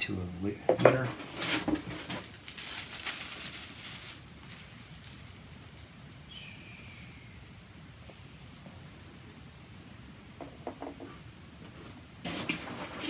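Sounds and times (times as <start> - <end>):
packing wrap rustling: 1.0 - 6.0
short high falling chirp: 6.3 - 7.5.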